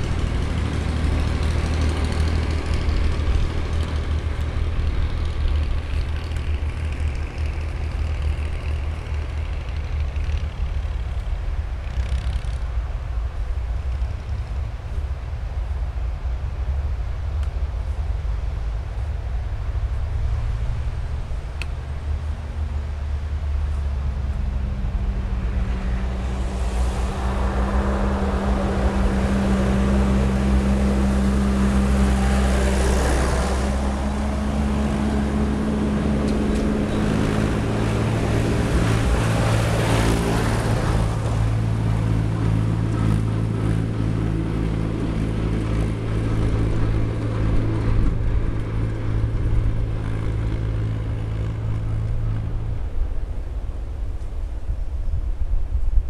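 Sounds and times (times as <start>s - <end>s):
tractor engine passing: 0.0s - 56.0s
wind noise: 12.6s - 56.0s.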